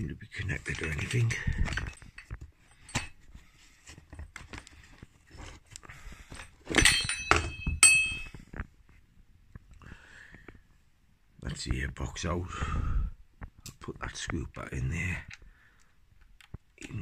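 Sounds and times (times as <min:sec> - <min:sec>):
sharp metallic clink: 0:06.7 - 0:08.3.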